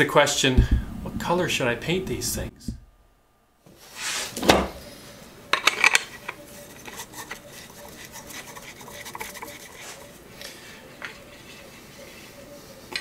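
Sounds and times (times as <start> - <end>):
metal rod rubbing and clicking: 5.6 - 10.1.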